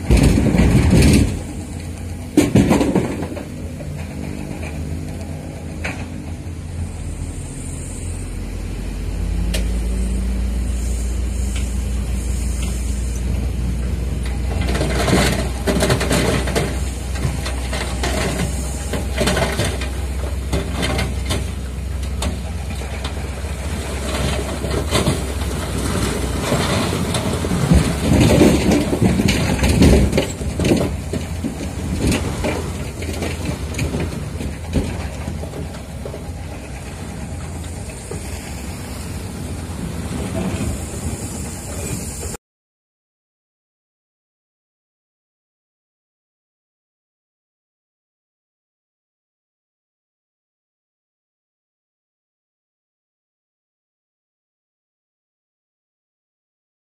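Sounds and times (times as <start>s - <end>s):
soil and rocks sliding out: 0.0s - 8.0s, 10.8s - 42.4s
truck diesel engine running: 0.0s - 42.4s.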